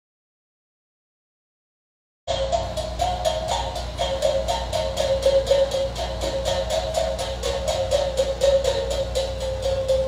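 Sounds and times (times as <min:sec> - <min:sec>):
mouth bow plucked: 0:02.3 - 0:10.0.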